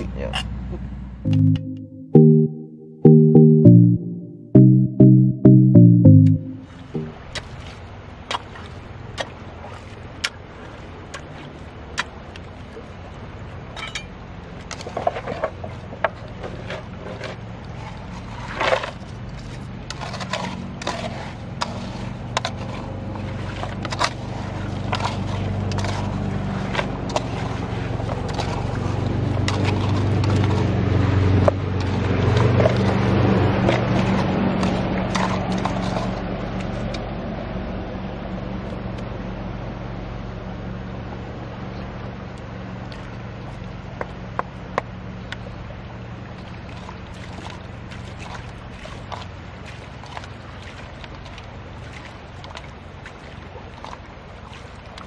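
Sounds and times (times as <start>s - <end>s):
stones and wet gravel clattering: 13.8s - 30.7s.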